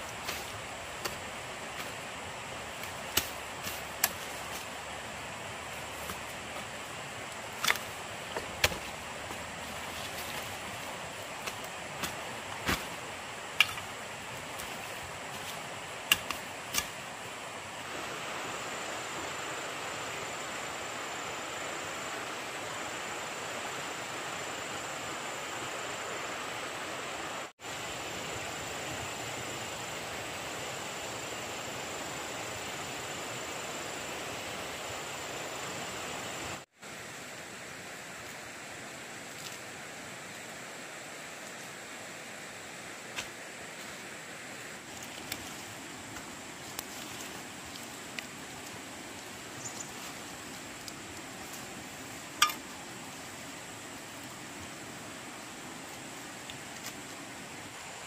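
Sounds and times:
water rushing: 0.0s - 28.7s.

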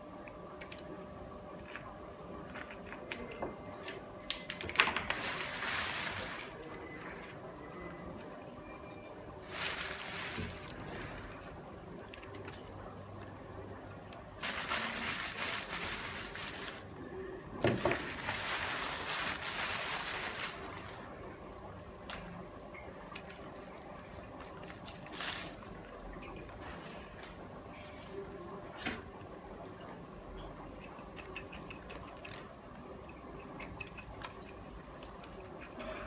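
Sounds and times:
plastic bag rustling: 5.1s - 7.3s, 9.4s - 11.5s, 14.4s - 17.0s, 17.6s - 21.2s, 24.5s - 25.8s.

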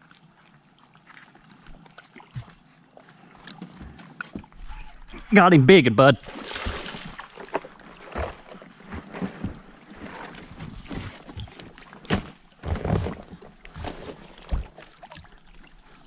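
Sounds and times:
fish splashing in water: 6.2s - 16.0s.

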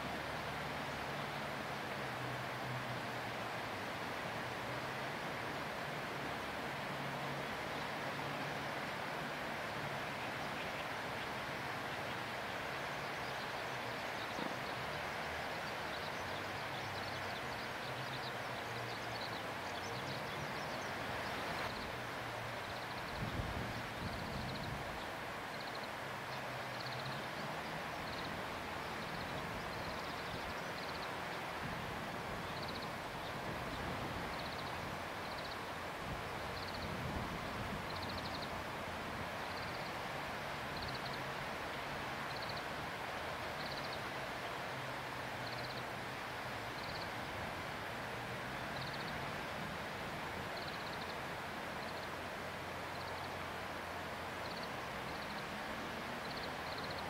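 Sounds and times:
outdoor background noise: 0.0s - 57.0s.

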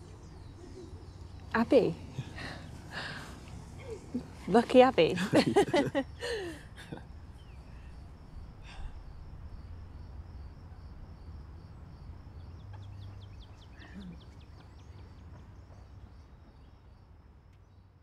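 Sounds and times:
birds chirping: 0.0s - 9.8s, 12.3s - 16.9s
steady low rumble: 0.0s - 13.0s.

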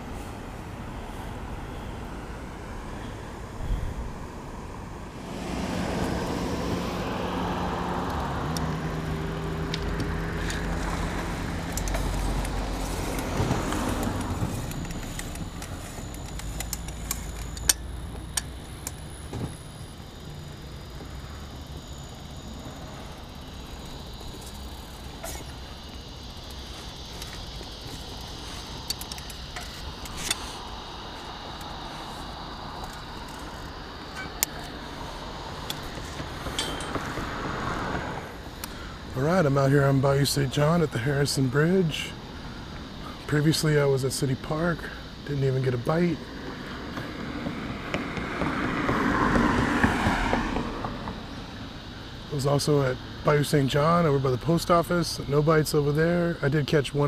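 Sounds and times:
vehicle engine passing: 0.0s - 40.9s, 46.2s - 52.0s
road noise: 0.0s - 57.0s
wind: 0.0s - 57.0s
bicycle rattles and clicks: 9.6s - 20.2s, 23.3s - 30.6s, 31.2s - 37.5s.

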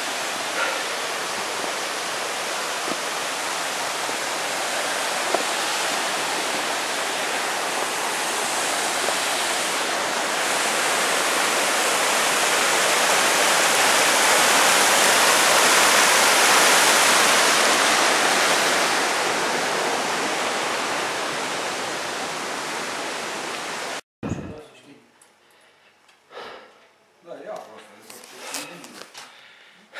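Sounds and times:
stream rushing over rocks: 0.0s - 24.0s.

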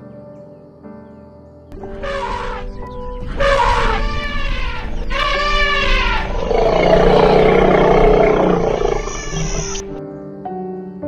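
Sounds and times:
elephant trumpeting: 2.0s - 2.7s, 3.4s - 10.0s
elephant rough roaring: 6.3s - 10.0s.

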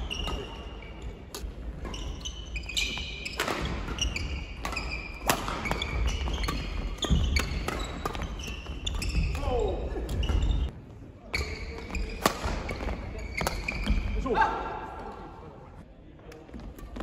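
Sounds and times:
sneakers squeaking on wooden floor: 0.0s - 14.2s
rackets striking shuttlecock: 3.0s - 9.2s.

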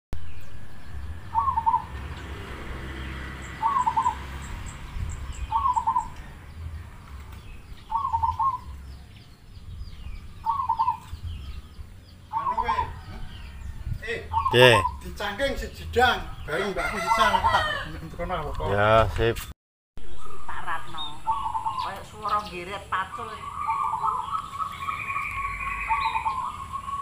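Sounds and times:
dove cooing: 1.3s - 2.0s, 3.5s - 4.2s, 5.4s - 6.3s, 7.8s - 8.8s, 10.4s - 11.5s, 12.3s - 13.6s, 23.0s - 27.0s
animal call: 20.2s - 27.0s.

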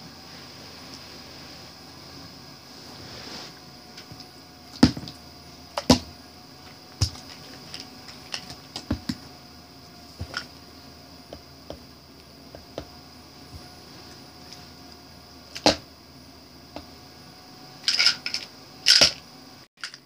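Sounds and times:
faint high whine: 0.0s - 20.0s
plastic bottles knocking on book: 4.8s - 5.2s, 7.0s - 9.2s.

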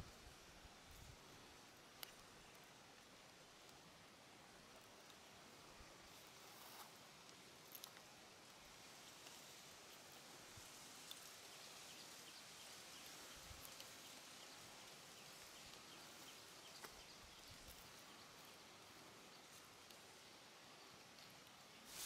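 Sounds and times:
faint background hiss: 0.0s - 22.0s
soft ticks: 1.9s - 3.8s, 6.7s - 8.6s, 11.0s - 11.6s, 13.0s - 14.5s, 19.4s - 20.1s.

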